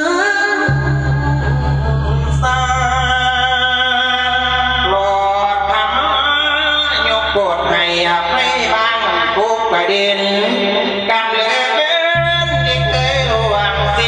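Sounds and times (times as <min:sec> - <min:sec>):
man singing chanted verse: 0:00.0 - 0:14.0
low steady hum: 0:00.7 - 0:08.9.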